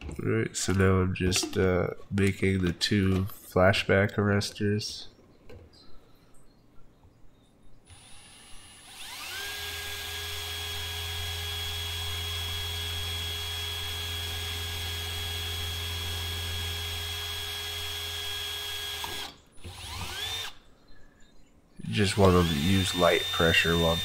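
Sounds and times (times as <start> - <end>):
cordless drill boring through plastic: 7.9 - 20.6, 22.0 - 24.0.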